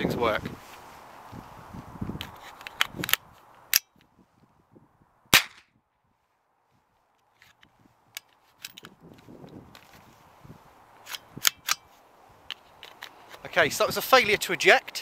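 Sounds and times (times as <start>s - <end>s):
rifle handling clicks: 2.2s - 4.1s, 7.2s - 10.0s, 11.0s - 13.4s
rifle shot: 5.3s - 5.7s.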